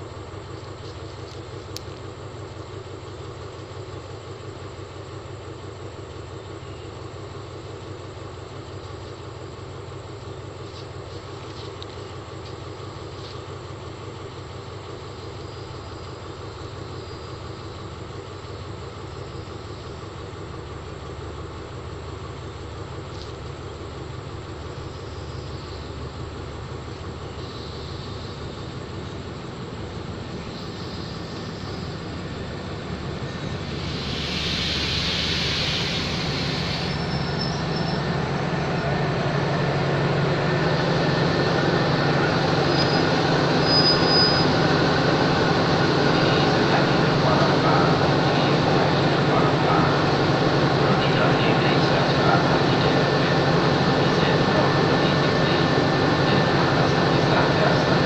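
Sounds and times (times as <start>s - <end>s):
diesel locomotive running: 0.0s - 58.0s
train rumbling on rails: 0.0s - 58.0s
brief hiss: 33.8s - 37.9s
short thin squeal: 34.5s - 38.1s, 42.6s - 44.6s.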